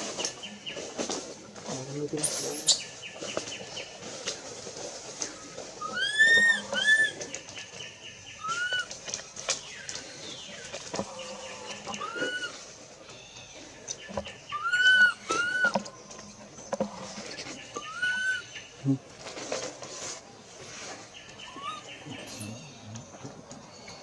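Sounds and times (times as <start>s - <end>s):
infant monkey crying: 5.8s - 7.1s, 12.0s - 12.5s, 14.6s - 15.7s.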